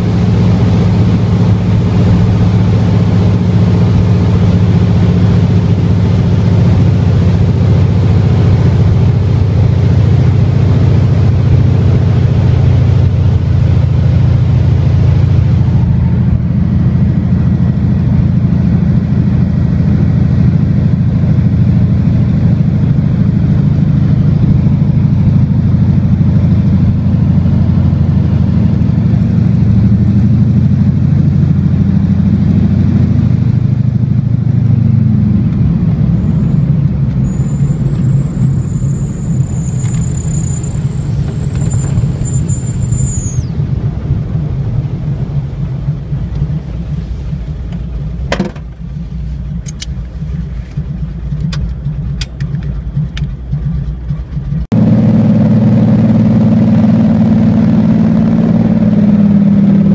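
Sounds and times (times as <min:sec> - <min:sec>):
piston engine drone: 0:00.0 - 0:59.9
thin high whine: 0:35.8 - 0:43.5.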